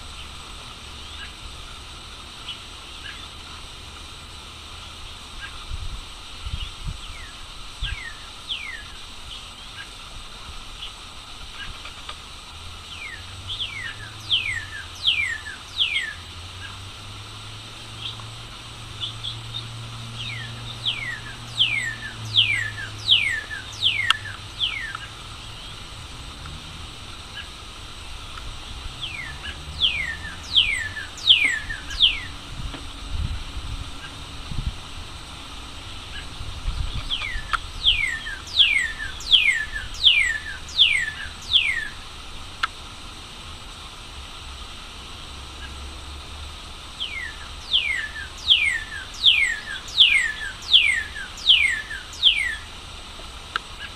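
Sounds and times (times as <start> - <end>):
bird singing whistles: 6.6 - 8.9, 12.9 - 16.2, 19.0 - 25.1, 29.0 - 32.4, 36.9 - 42.0, 47.0 - 52.7.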